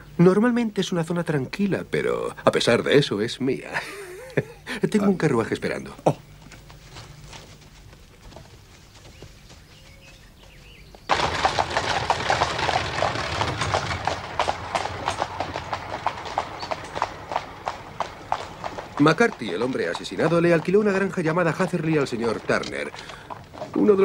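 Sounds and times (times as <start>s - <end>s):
horse hoofbeats clip-clopping: 6.3s - 24.0s
carriage wheels rumbling: 11.1s - 24.0s.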